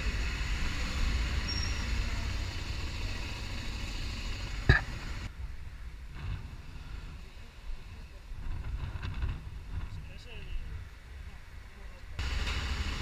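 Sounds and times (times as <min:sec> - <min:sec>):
motorcycle engine running: 0:00.0 - 0:05.3, 0:12.2 - 0:13.0
low rumble of wind: 0:00.0 - 0:13.0.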